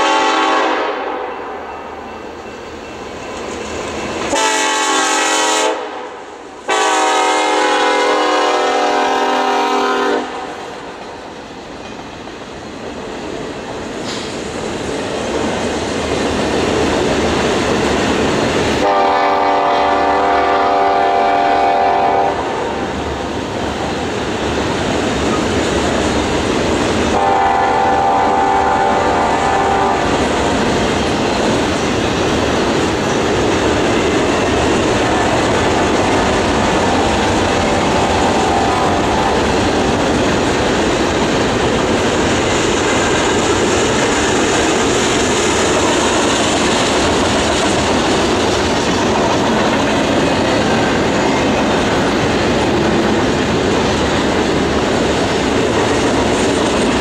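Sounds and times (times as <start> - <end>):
locomotive air horn blasts: 0.0 - 1.4, 4.3 - 10.6, 18.8 - 22.7, 27.1 - 30.1, 37.7 - 39.4
freight train rumbling: 0.0 - 57.0
wheels clattering over rail joints: 39.4 - 57.0.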